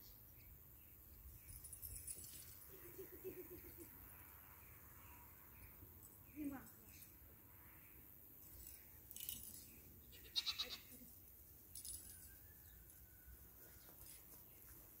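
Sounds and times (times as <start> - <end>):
young goat bleating: 10.1 - 11.1.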